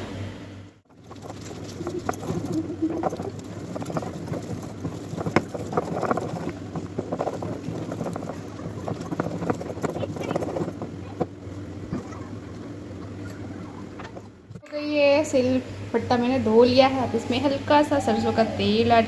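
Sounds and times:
stone roller grinding on slab: 0.9 - 11.4.

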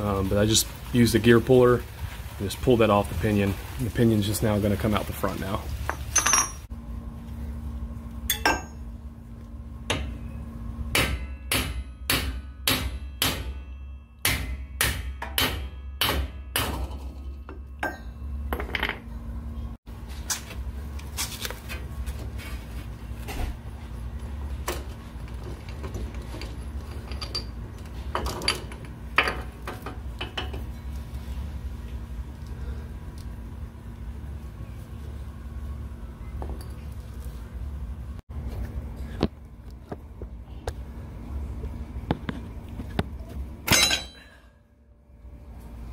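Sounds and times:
steady low hum: 0.0 - 45.9
hammer striking metal shaft: 10.9 - 18.0, 43.7 - 44.3.

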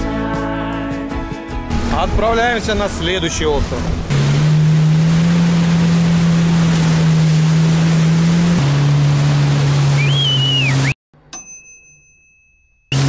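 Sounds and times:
jet ski engine running: 1.7 - 11.0
rush of wind and water: 1.8 - 8.6.

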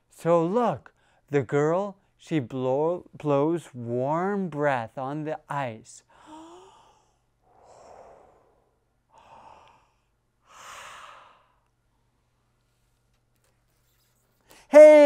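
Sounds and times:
man exhaling breath: 6.2 - 11.6.

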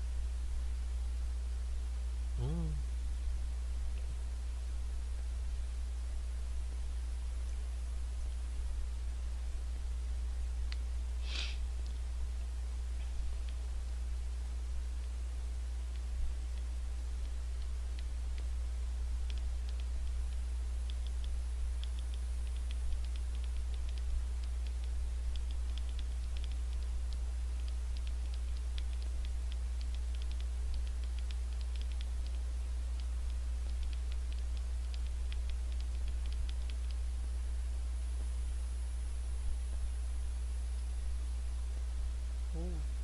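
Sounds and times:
steady low hum: 0.0 - 43.0
thumbs tapping touchscreen: 19.2 - 37.0.

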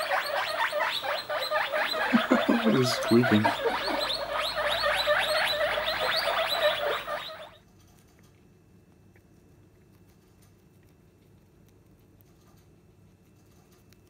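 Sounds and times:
guinea pig wheeking: 0.0 - 8.4
guinea pig nibbling lettuce: 0.0 - 14.0.

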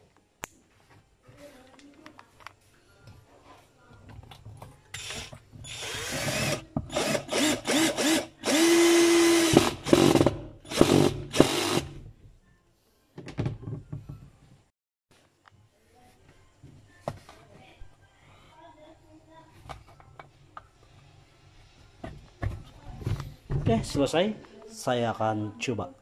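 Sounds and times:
cordless drill driving screw: 5.0 - 11.9.

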